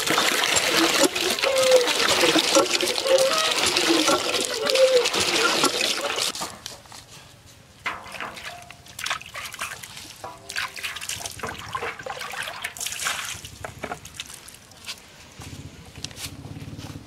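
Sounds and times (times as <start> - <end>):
water splashing in metal basin: 0.0 - 6.4, 7.9 - 14.7.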